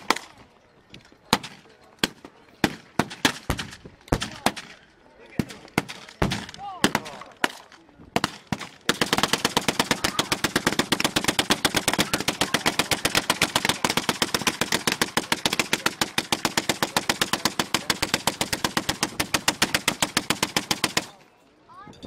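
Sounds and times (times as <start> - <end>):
gatling gun firing: 8.2 - 21.2.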